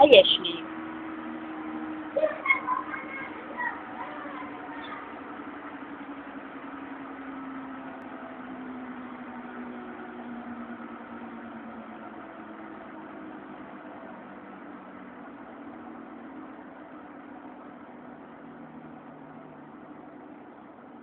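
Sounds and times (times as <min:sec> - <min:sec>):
engine-like hum: 0:00.0 - 0:21.0.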